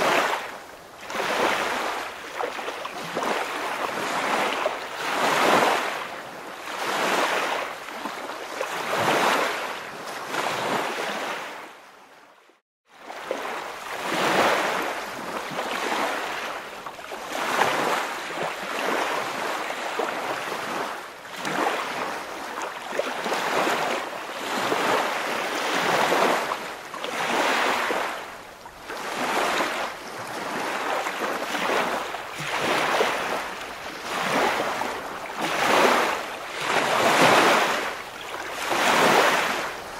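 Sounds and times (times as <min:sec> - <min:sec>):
waves washing in and out: 0:00.0 - 0:39.9.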